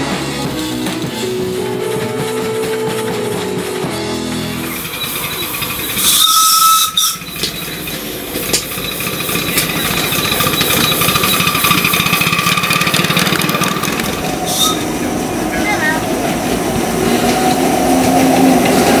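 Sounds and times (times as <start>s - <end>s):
steam hissing: 4.6s - 19.0s
steam whistle blast: 5.9s - 7.4s, 14.5s - 15.0s.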